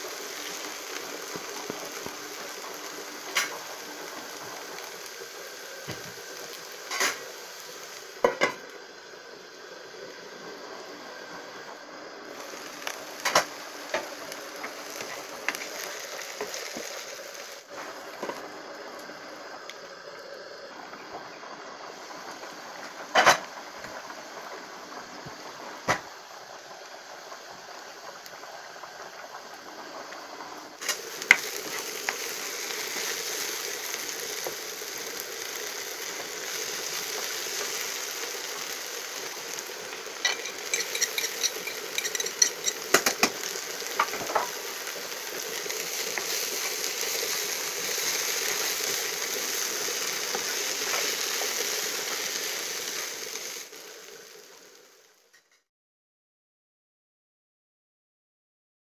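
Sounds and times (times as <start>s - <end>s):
okra sizzling in oil: 0.0s - 55.7s
spatula scraping pan: 40.2s - 43.3s.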